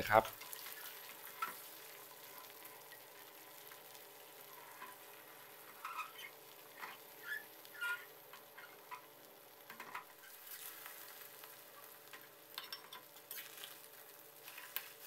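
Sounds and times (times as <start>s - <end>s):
eggs frying in a wok: 0.0s - 15.0s
metal spatula scraping a wok: 5.7s - 9.0s, 12.6s - 13.8s, 14.4s - 15.0s.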